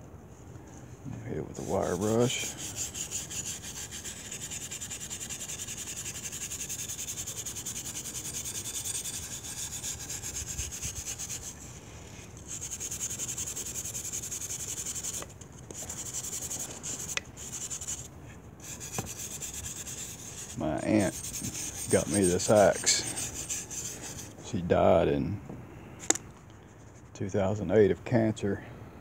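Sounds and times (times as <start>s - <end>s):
wire brush scrubbing metal: 1.2s - 11.8s, 12.4s - 24.4s.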